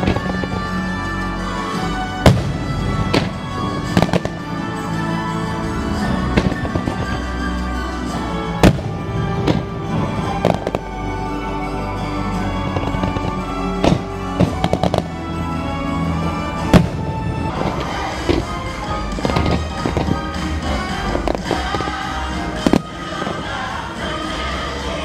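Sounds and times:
fireworks bangs: 0.0s - 0.7s, 1.9s - 4.8s, 5.9s - 7.4s, 8.6s - 10.9s, 12.6s - 23.7s
music playing: 0.0s - 25.0s.

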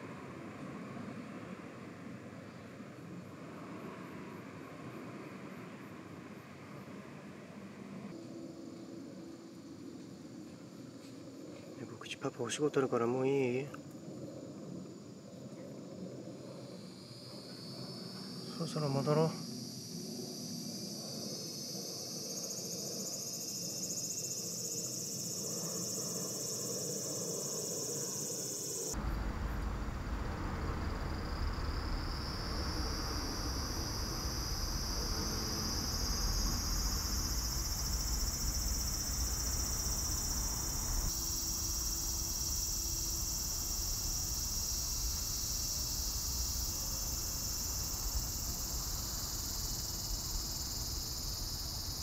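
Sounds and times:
insects chirring: 8.1s - 52.0s
low rumble: 29.0s - 41.1s.

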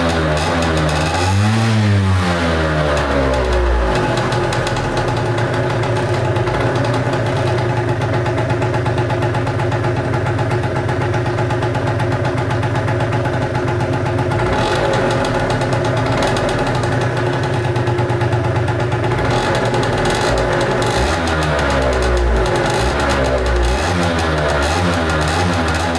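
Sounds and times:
two-stroke scooter engine idling: 0.0s - 25.9s.

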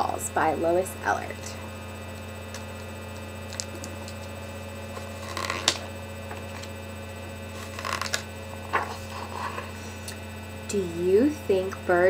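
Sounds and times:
steady electrical hum: 0.0s - 12.0s
book pages rustling: 2.5s - 6.8s, 7.5s - 10.2s.

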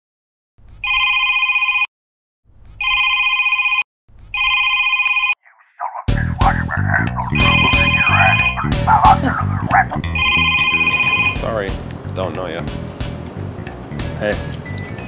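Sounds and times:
phone ringtone ringing: 0.8s - 1.9s, 2.8s - 3.8s, 4.4s - 5.4s, 7.3s - 8.8s, 10.1s - 11.5s
music: 6.1s - 15.0s.

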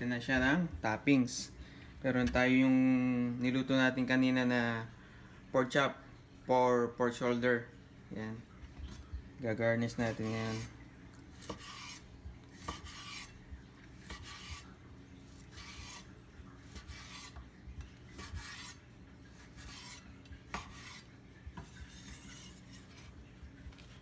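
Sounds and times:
knife sawing through meat: 10.0s - 10.7s, 11.4s - 13.4s, 14.0s - 14.7s, 15.3s - 17.4s, 18.1s - 18.8s, 19.4s - 23.2s.

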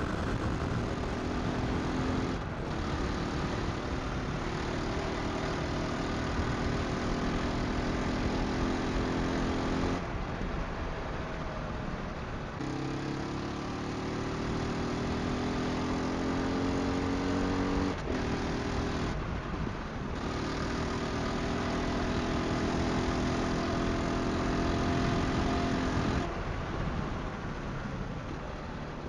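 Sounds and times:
wind on helmet microphone: 0.0s - 4.6s
motorcycle engine accelerating: 0.0s - 10.1s, 12.6s - 19.2s, 20.1s - 26.8s.

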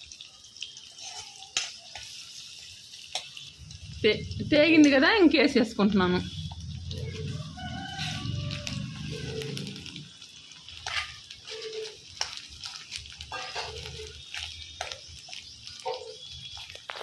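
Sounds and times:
faint sizzle: 0.0s - 17.0s
spoon scraping and knocking on pan: 10.8s - 11.8s, 13.3s - 14.1s.

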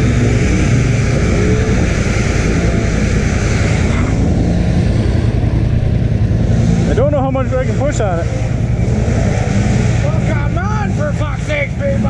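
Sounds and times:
engine running with hiss: 0.0s - 12.0s.

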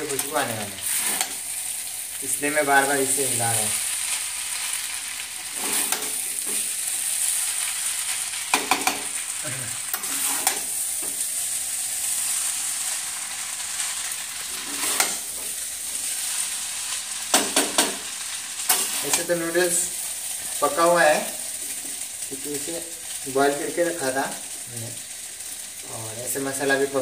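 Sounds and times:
noodles sizzling in a pan: 0.0s - 27.0s
utensils scraping a metal pan: 0.1s - 1.4s, 5.5s - 6.7s, 9.9s - 10.7s, 14.5s - 15.5s.

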